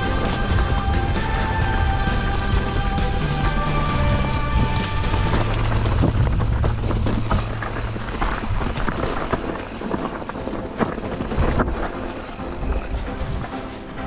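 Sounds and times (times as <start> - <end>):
knocks over bumps: 0.0 - 12.4
bike rattling: 0.0 - 14.0
bike tyres crunching on dirt: 0.0 - 14.0
wind over microphone: 4.4 - 14.0.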